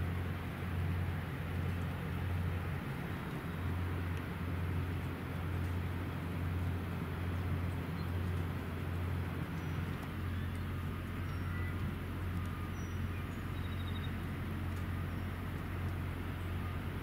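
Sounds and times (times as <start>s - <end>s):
low outdoor hum: 0.0s - 17.0s
faint bird chirps: 9.6s - 11.8s, 12.5s - 14.2s.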